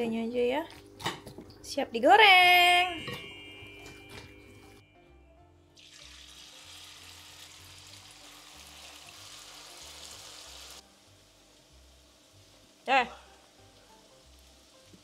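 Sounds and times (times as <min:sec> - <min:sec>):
batter sizzling in hot oil: 0:05.8 - 0:15.0.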